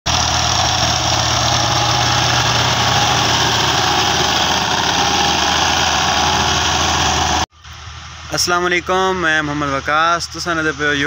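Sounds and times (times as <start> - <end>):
tractor diesel engine running: 0.0 - 8.1.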